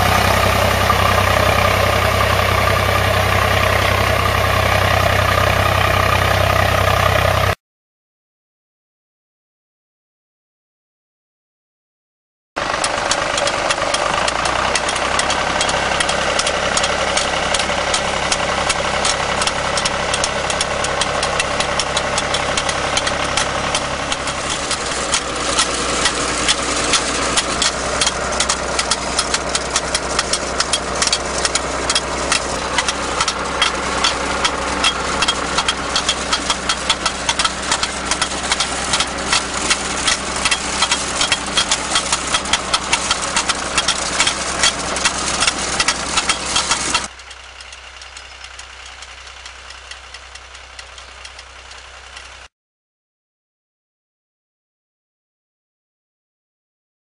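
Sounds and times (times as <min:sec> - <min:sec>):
tractor engine running: 0:00.0 - 0:07.6, 0:12.6 - 0:52.5
planting mechanism clicking: 0:12.6 - 0:52.2.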